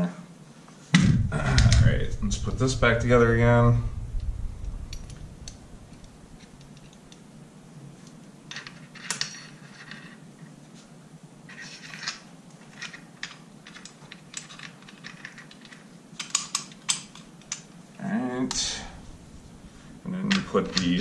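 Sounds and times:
small metal parts clicking: 11.5s - 17.7s.

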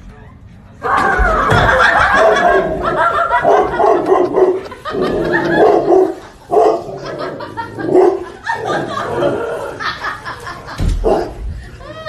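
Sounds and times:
large dog barking: 1.8s - 9.9s, 11.0s - 11.4s.

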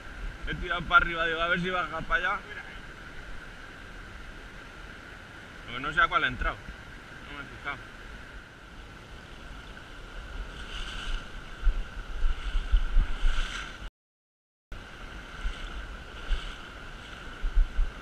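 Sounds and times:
wind buffeting microphone: 10.2s - 13.9s, 15.1s - 18.0s
river water rushing over stones: 14.8s - 18.0s.

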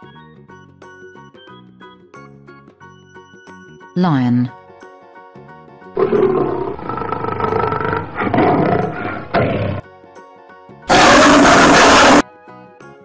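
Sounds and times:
light background music: 0.0s - 6.6s
lion roaring: 6.0s - 9.8s, 10.9s - 12.2s.

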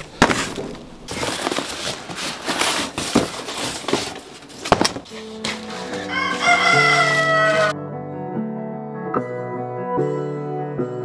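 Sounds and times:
cardboard box rustling and scraping: 0.0s - 7.7s.

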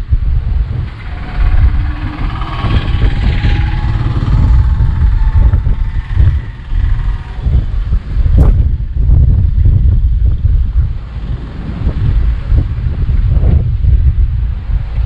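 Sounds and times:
engine droning: 0.0s - 9.6s
wind buffeting microphone: 0.0s - 15.0s.

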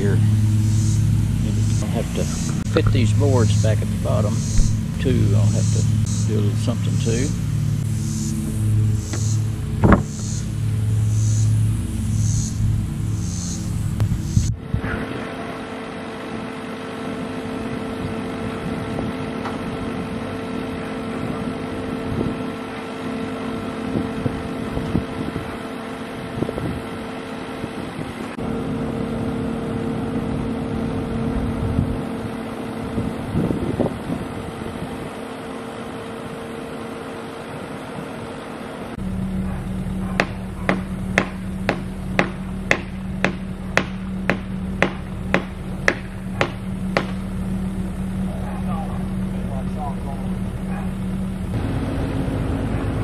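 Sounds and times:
diesel engine running: 0.0s - 53.0s
hammer blows on timber: 1.6s - 7.2s, 40.1s - 47.2s.

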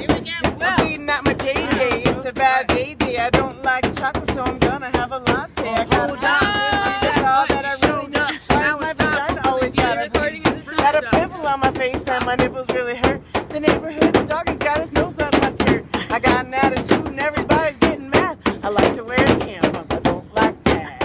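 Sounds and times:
hands drumming on metal: 0.0s - 21.0s
person vocalising: 5.6s - 11.4s.

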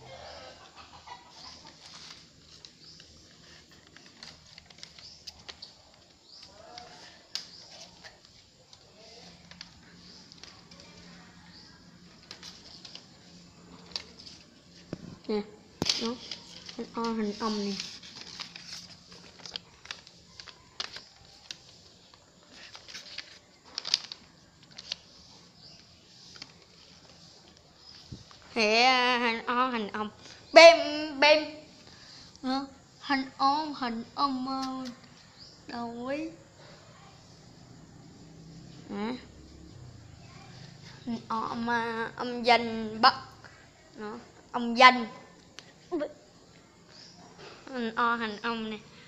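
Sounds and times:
paper rustling: 1.3s - 28.7s.

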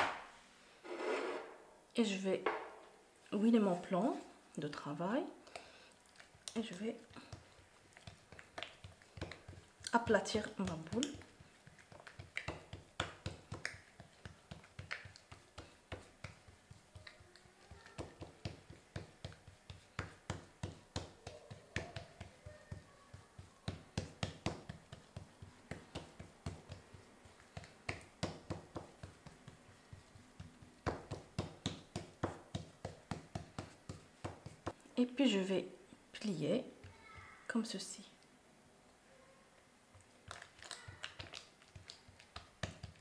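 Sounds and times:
hands patting dough on wood: 6.1s - 34.8s, 40.1s - 43.0s.

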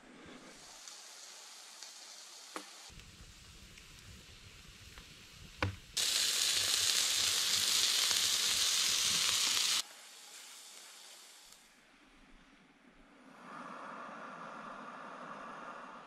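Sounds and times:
campfire crackling: 0.3s - 11.7s
meat sizzling on a hotplate: 0.6s - 11.6s.

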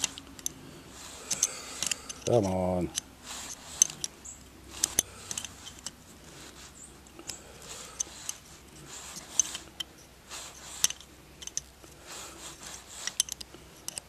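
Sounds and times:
wrench clicking on metal: 1.2s - 4.1s, 4.8s - 6.0s, 10.8s - 11.7s, 13.0s - 14.0s.

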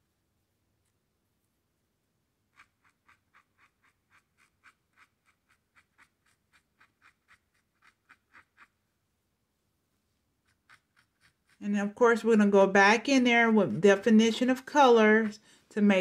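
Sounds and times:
marker brush scratching on canvas: 2.4s - 8.9s, 10.0s - 16.0s.

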